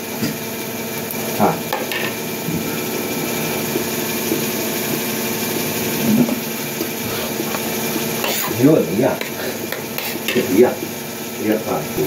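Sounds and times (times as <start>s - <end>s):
motor hum: 0.0s - 12.0s
person chewing: 2.4s - 5.1s.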